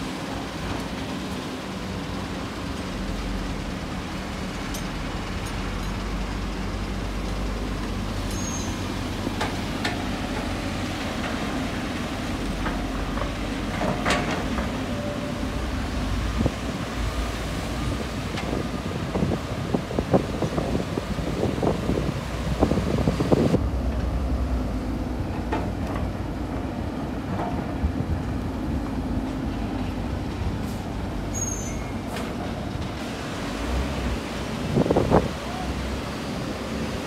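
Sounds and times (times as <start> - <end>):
excavator diesel engine running: 0.0 - 37.0
excavator knocks and clatters: 12.5 - 15.2, 25.3 - 26.7.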